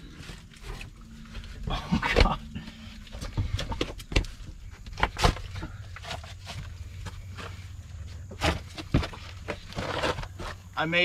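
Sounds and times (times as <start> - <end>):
body scuffing against rock: 3.0 - 10.7.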